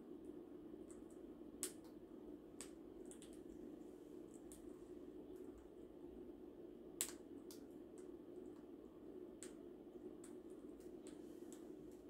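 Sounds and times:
low steady hum: 0:00.0 - 0:12.0
parrots clicking and tapping: 0:02.6 - 0:03.4.

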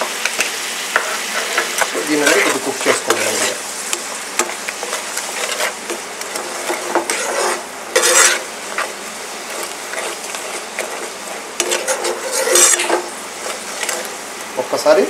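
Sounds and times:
sauce sizzling: 0:00.0 - 0:15.0
metal ladle scraping a pan: 0:00.9 - 0:14.3.

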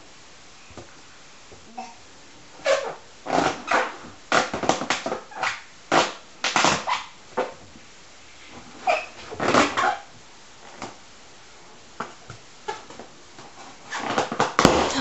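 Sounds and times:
balloon rubbing scrapes: 0:02.6 - 0:07.5, 0:13.6 - 0:15.0.

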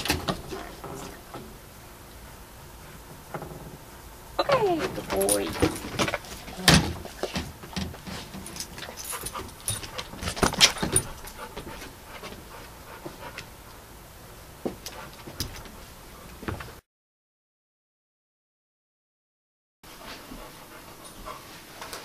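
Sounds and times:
collar and leash jingling: 0:04.4 - 0:12.4
dog claws clicking and knocking: 0:04.8 - 0:11.8.

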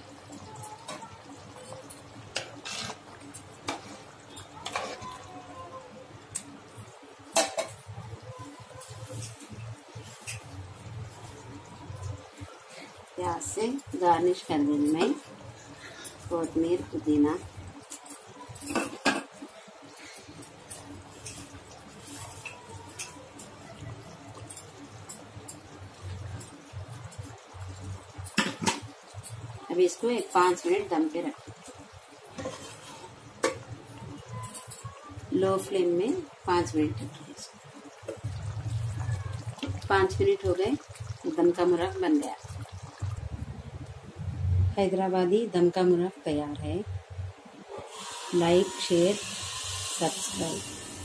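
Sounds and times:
metal spoon scraping a pot: 0:02.4 - 0:05.2, 0:32.4 - 0:33.2
low steady hum: 0:22.6 - 0:47.6.

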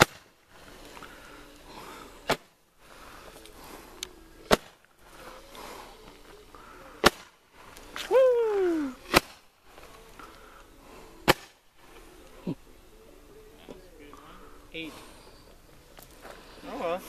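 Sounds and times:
firework pops: 0:00.0 - 0:00.4, 0:04.4 - 0:04.9, 0:07.0 - 0:09.5, 0:11.2 - 0:11.6.

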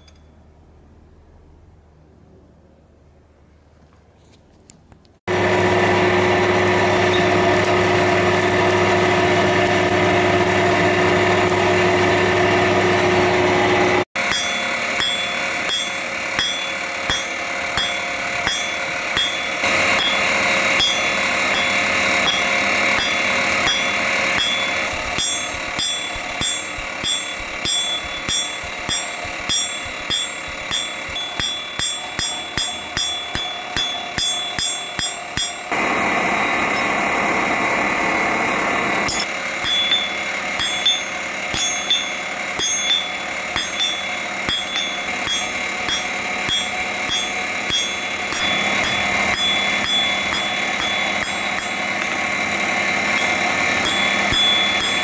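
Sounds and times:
forge blower running: 0:05.3 - 0:55.0
hammer ringing on anvil: 0:14.2 - 0:35.9, 0:39.0 - 0:55.0.

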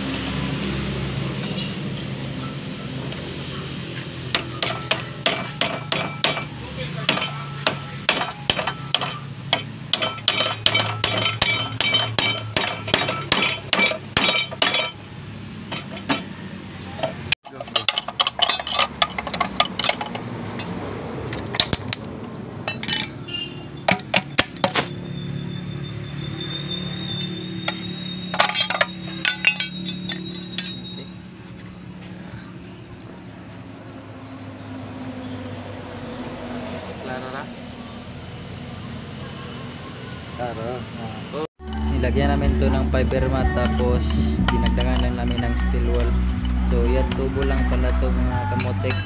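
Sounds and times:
hammer striking metal: 0:04.3 - 0:15.1, 0:15.7 - 0:16.4, 0:17.0 - 0:24.9, 0:27.0 - 0:31.2.

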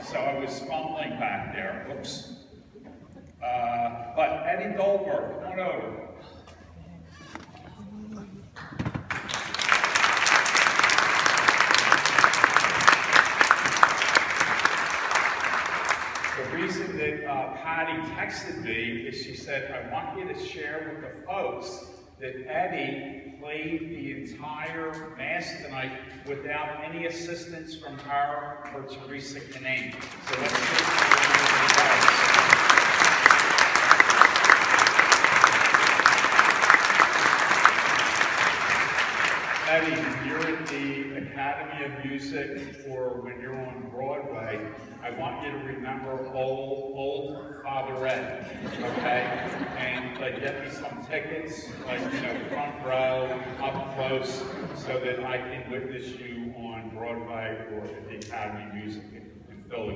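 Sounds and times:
crowd applauding: 0:08.5 - 0:16.9, 0:29.8 - 0:40.8.

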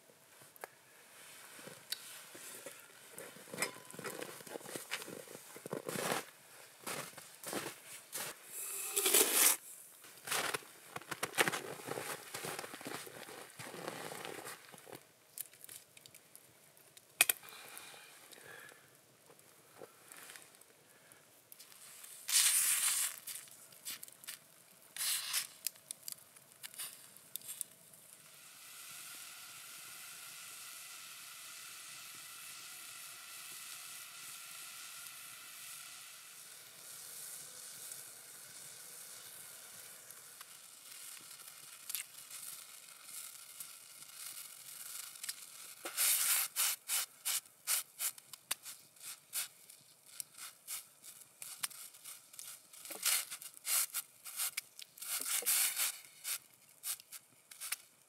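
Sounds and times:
pots sizzling: 0:00.0 - 0:16.2, 0:17.0 - 0:58.0
faint ringing tones: 0:03.6 - 0:04.0
knife scraping potato peel: 0:08.9 - 0:09.6.

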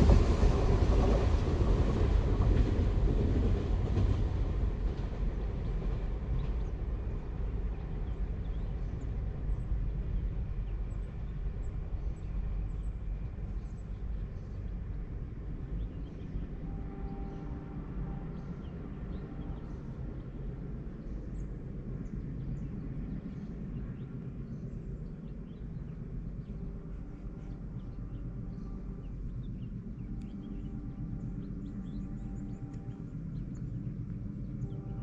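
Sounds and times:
steady low rumble: 0:00.0 - 0:35.0
small birds chirping: 0:07.4 - 0:35.0.

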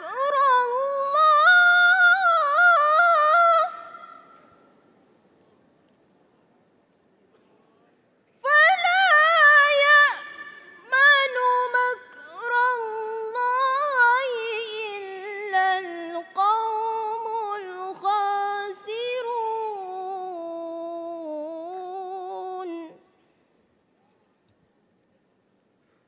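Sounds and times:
woman reciting melodically: 0:00.0 - 0:04.4, 0:08.4 - 0:23.3.

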